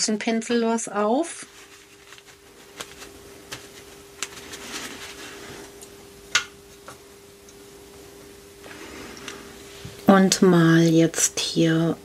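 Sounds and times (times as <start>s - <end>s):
faint hum: 0.0s - 12.0s
paper tissue rustling: 1.2s - 5.8s.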